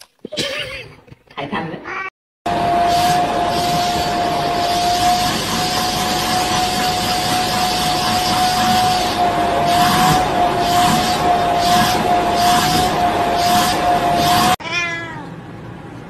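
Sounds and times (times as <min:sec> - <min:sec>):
vacuum cleaner running: 0:02.5 - 0:14.6.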